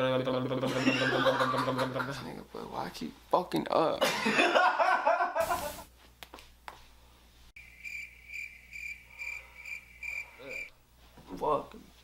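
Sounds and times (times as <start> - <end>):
cricket chirping: 7.6 - 10.7.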